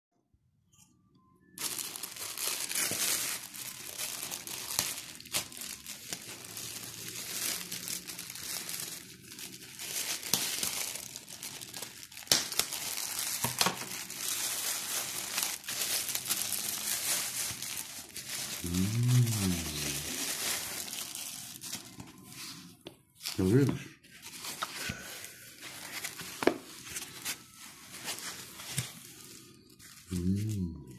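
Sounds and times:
plastic bag crinkling: 1.6 - 30.9
person humming: 18.5 - 20.4, 30.1 - 30.9.

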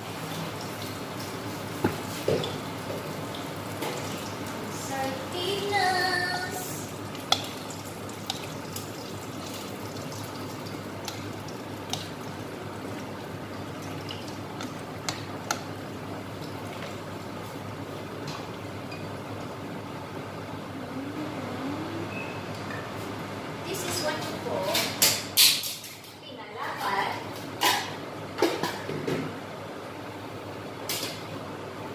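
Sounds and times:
food bubbling and sizzling in wok: 0.0 - 23.6.

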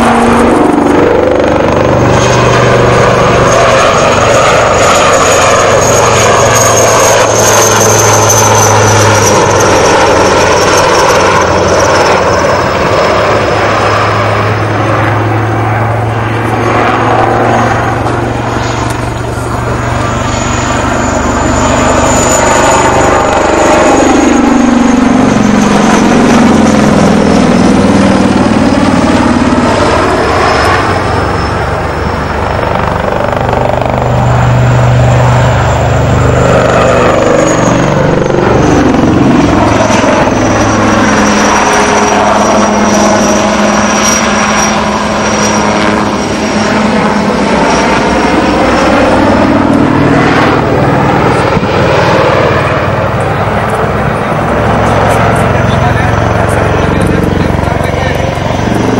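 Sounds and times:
helicopter rotor beat: 0.0 - 58.9
high turbine whine: 0.0 - 58.9.

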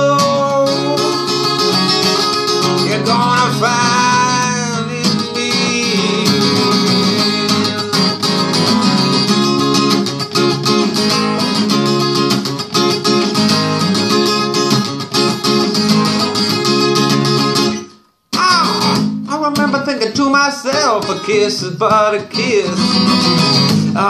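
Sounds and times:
acoustic guitar strumming: 0.0 - 24.0.

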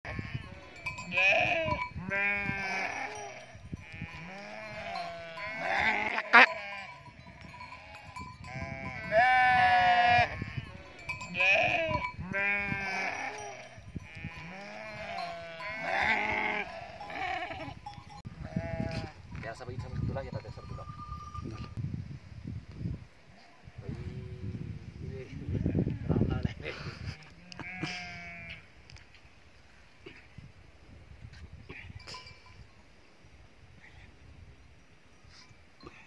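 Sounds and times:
sheep and goats bleating: 0.1 - 19.2, 27.2 - 28.7.

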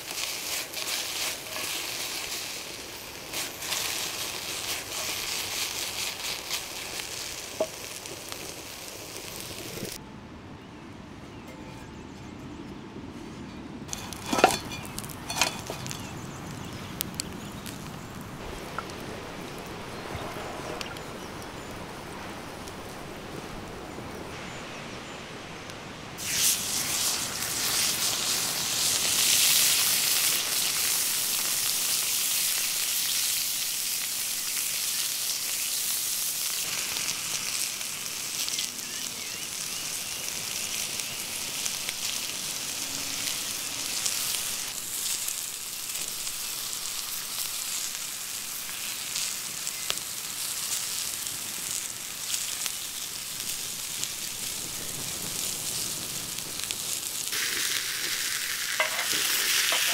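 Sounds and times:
steak sizzling on grill pan: 0.0 - 10.0, 13.9 - 16.2, 26.2 - 59.9.

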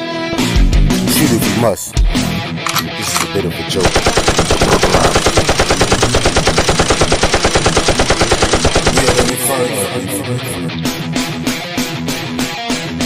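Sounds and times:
music: 0.0 - 3.8, 9.0 - 13.0
machine-gun fire: 3.8 - 9.4.

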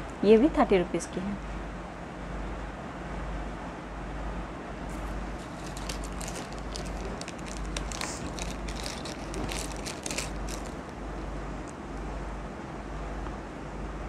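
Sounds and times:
steady low hum: 1.4 - 14.0
earrings clicking and rustling: 4.9 - 11.0.

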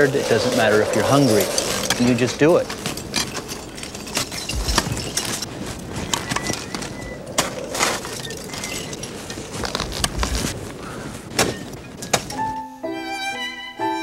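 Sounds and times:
ice chipping and breaking: 0.0 - 5.5.

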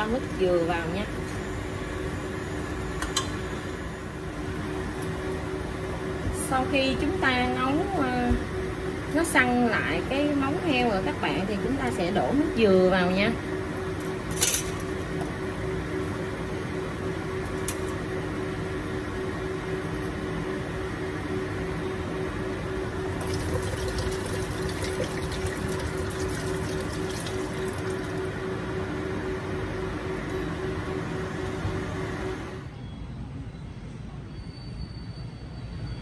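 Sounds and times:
liquid pouring and splashing: 23.2 - 28.3.

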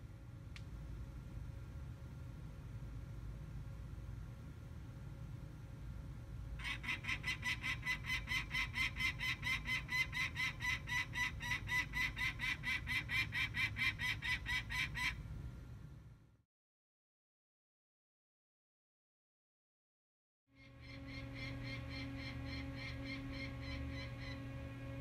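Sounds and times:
low steady rumble: 0.0 - 16.4, 20.6 - 25.0
falcon kak calls: 6.6 - 15.2.

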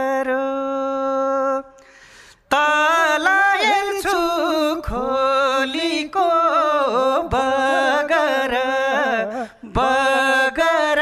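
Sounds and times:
man singing folk song: 2.6 - 11.0.

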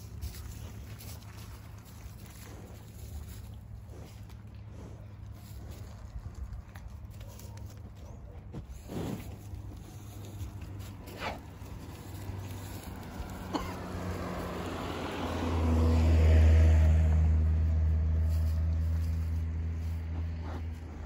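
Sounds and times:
vehicle passing on road: 0.0 - 21.0.

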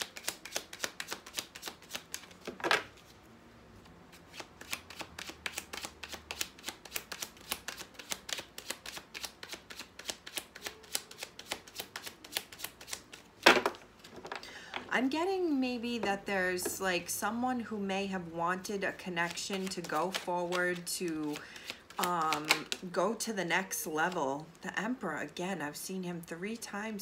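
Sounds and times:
cards being shuffled: 0.0 - 3.1, 3.8 - 14.4, 19.2 - 22.9.

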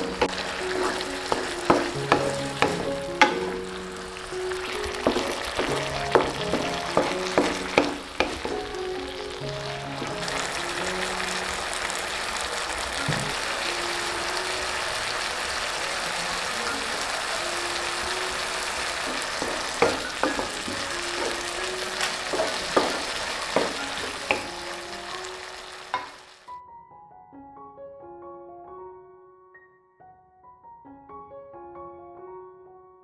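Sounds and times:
wooden spatula scraping a pan: 0.0 - 8.8, 18.3 - 26.2
vegetables sizzling in a wok: 0.0 - 26.5.

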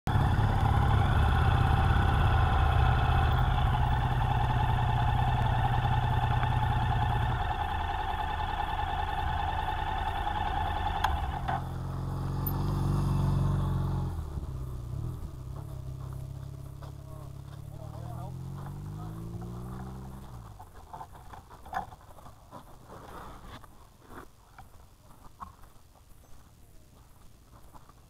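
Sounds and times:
passing motorcycle engine: 0.1 - 21.1
motorcycle engine running: 0.1 - 22.0.

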